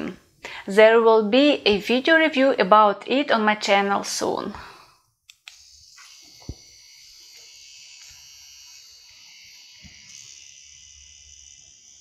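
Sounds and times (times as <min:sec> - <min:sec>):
high-pitched machine whir: 0:05.5 - 0:12.0.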